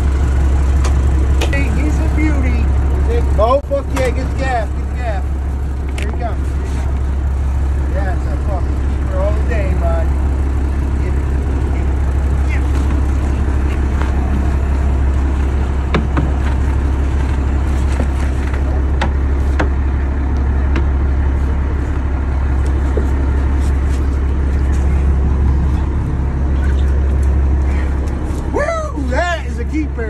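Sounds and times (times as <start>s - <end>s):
boat engine droning: 0.0s - 30.0s
sharp knocks: 15.9s - 16.6s.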